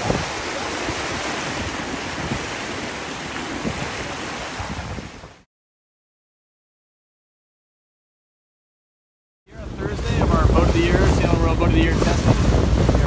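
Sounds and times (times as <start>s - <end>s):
wind buffeting microphone: 0.0s - 5.4s, 9.5s - 13.0s
water rushing past boat: 0.0s - 5.5s, 9.5s - 13.0s.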